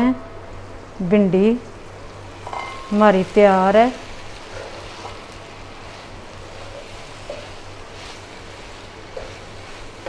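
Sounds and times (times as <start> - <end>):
food sizzling in a metal pan: 0.6 - 10.0
wooden spatula stirring: 4.1 - 10.0.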